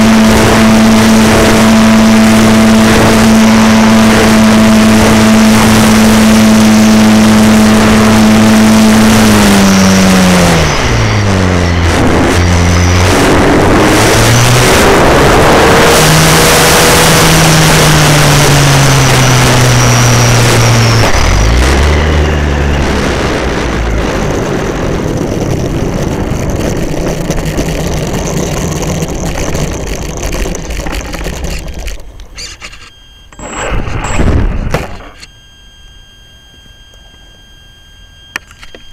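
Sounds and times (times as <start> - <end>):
wheels rolling on asphalt: 0.0 - 35.3
electric motor and propeller whining: 0.0 - 38.9
wind rush: 9.3 - 32.1.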